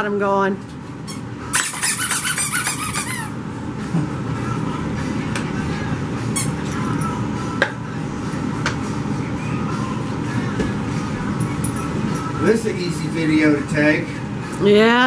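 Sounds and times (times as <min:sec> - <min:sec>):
high-pitched puppy squeaking: 0:01.1 - 0:03.4.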